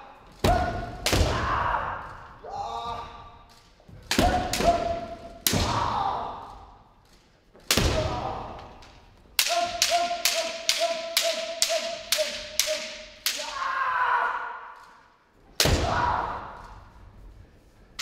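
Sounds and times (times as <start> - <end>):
high held shout: 9.4 - 14.8.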